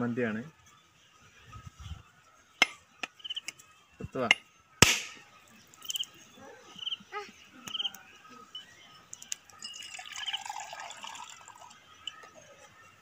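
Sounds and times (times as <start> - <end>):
coconut water dripping: 9.1 - 12.3.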